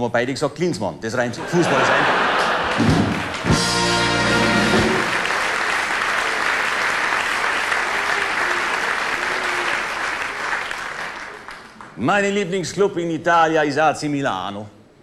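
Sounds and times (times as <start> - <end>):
audience applauding: 1.5 - 12.0
band chord: 3.4 - 5.2.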